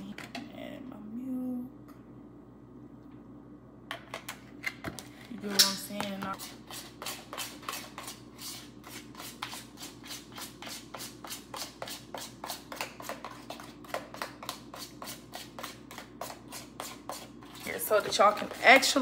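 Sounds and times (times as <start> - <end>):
utensil beating batter in a bowl: 5.5 - 19.0.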